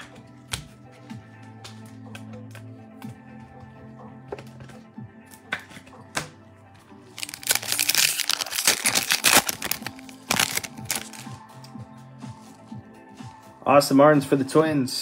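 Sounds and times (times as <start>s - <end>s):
background music: 0.0s - 15.0s
foil wrapper crinkling: 7.2s - 11.3s.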